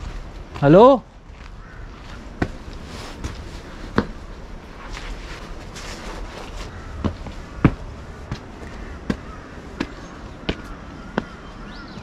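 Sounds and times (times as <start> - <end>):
footsteps walking: 0.0 - 12.0.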